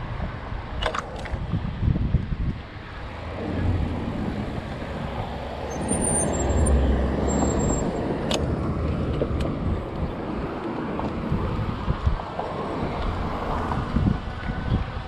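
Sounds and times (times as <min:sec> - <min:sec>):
wind buffeting microphone: 0:00.0 - 0:15.0
vehicle engine passing: 0:03.0 - 0:09.7.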